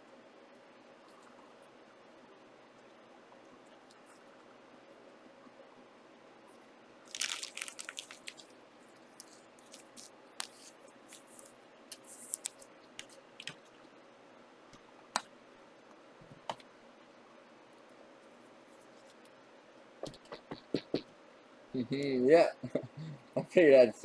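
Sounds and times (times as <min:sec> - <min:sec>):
packaging crinkling: 0:07.1 - 0:13.6.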